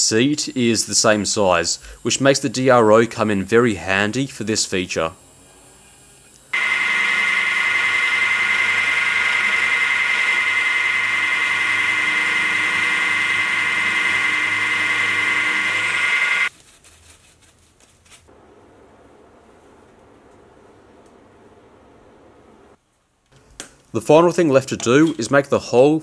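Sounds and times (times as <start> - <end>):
milling cutter whining in steel: 6.6 - 16.5.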